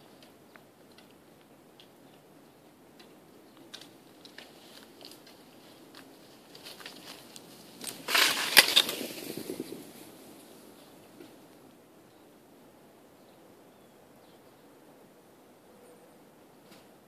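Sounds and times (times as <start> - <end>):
snow crunching: 4.4 - 10.7.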